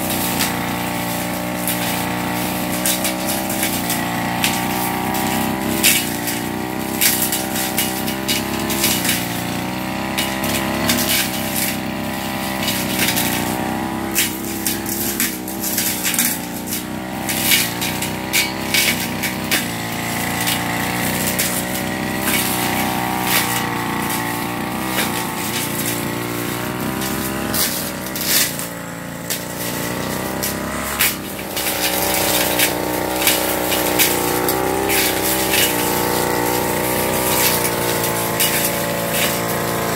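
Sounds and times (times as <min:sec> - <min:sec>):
brush cutter engine running: 0:00.0 - 0:39.9
cutting head snapping vegetation: 0:12.6 - 0:39.9.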